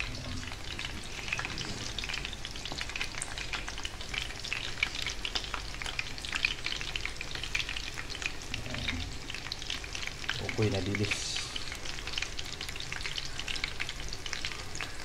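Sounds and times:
fritters sizzling in oil: 0:00.0 - 0:15.0
oil crackles and pops: 0:00.0 - 0:15.0.

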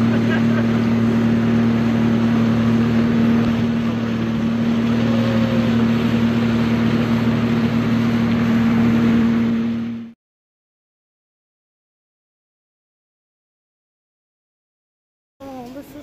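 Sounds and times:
wind and water rushing: 0:00.0 - 0:10.0
jet ski engine running: 0:00.0 - 0:10.2.

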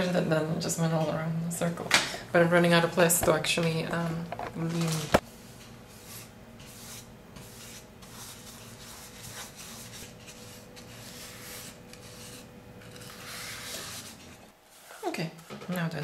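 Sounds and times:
paintbrush rubbing on wood: 0:05.4 - 0:15.5.

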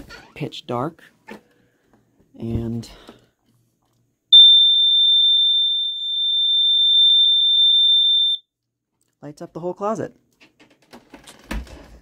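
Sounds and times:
smoke detector alarm: 0:04.3 - 0:08.5.

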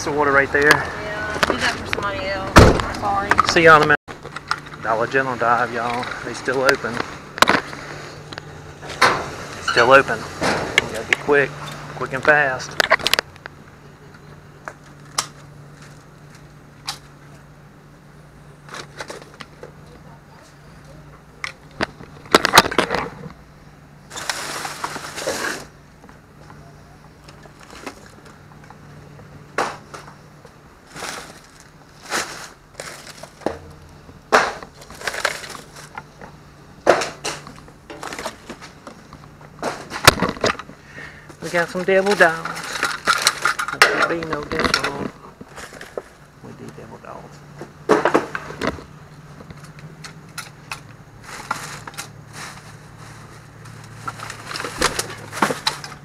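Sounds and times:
steady low hum: 0:00.0 - 0:56.0
plastic trash bags crinkling: 0:24.1 - 0:25.8, 0:30.8 - 0:36.2, 0:41.4 - 0:46.3, 0:50.6 - 0:56.0.

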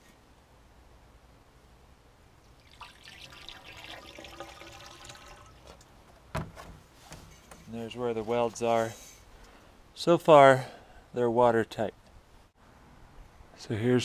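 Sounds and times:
water pouring into metal tubes: 0:02.5 - 0:05.8.

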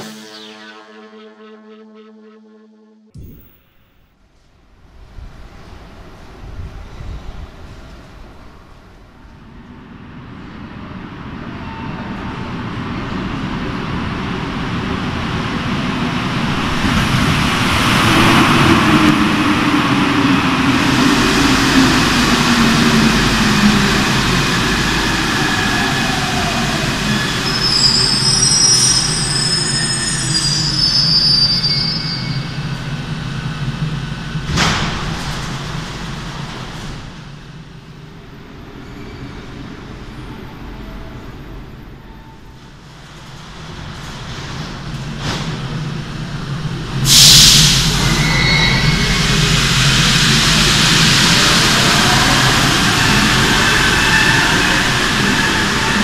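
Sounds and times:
train pulling in: 0:00.0 - 0:56.0
high brake squeals: 0:25.0 - 0:32.9, 0:38.7 - 0:41.1, 0:47.1 - 0:50.0, 0:51.4 - 0:56.0.

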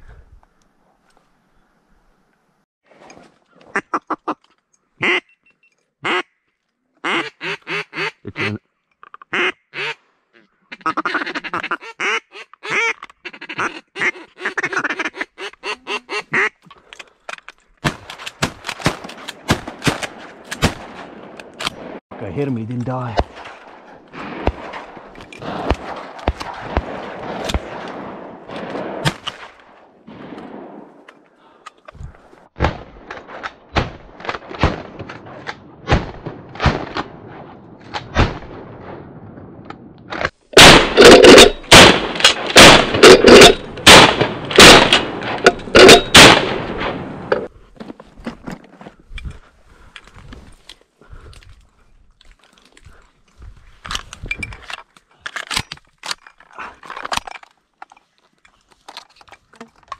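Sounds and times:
shotgun shots: 0:17.8 - 0:30.8, 0:40.5 - 0:47.3.

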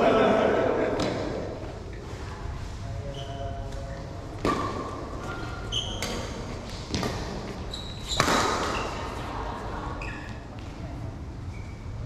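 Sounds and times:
shoes squeaking on court: 0:03.0 - 0:09.3, 0:09.9 - 0:10.7
racket hitting shuttlecock: 0:04.4 - 0:05.3, 0:08.0 - 0:09.0.

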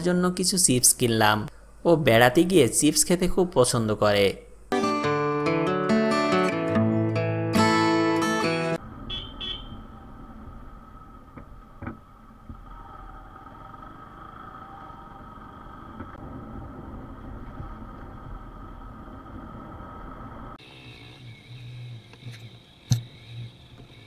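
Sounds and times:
motorcycle engine cruising: 0:08.8 - 0:24.0.

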